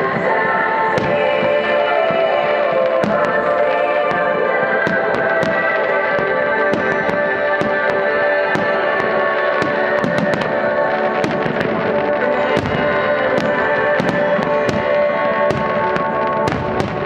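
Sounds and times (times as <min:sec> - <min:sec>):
music playing: 0:00.0 - 0:17.0.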